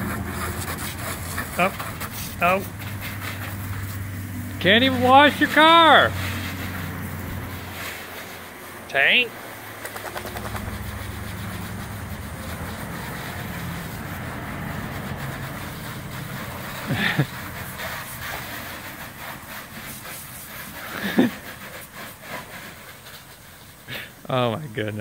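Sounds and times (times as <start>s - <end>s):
low engine rumble: 0.0s - 19.0s
garden hose spraying water: 0.0s - 25.0s.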